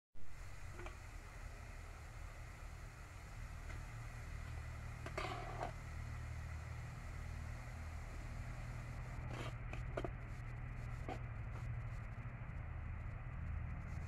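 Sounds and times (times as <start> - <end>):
low steady rumble: 0.2 - 14.0
plate scraping rice from metal pot: 5.0 - 5.8, 9.2 - 10.2.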